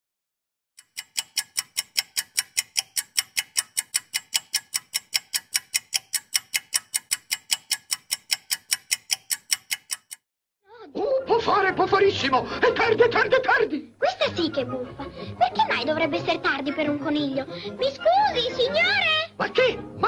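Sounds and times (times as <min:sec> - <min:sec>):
clock ticking quickly: 0:00.8 - 0:10.2.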